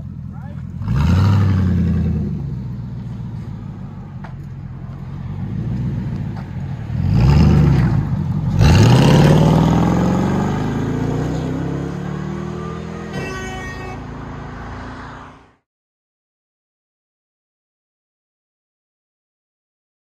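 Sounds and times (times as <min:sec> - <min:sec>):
truck engine revving and accelerating: 0:00.0 - 0:15.6.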